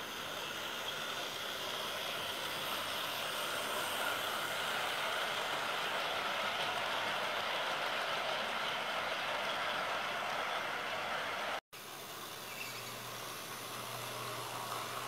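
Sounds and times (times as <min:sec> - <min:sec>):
model train wheels whirring on rails: 0:00.0 - 0:15.0
locomotive motor: 0:13.0 - 0:15.0.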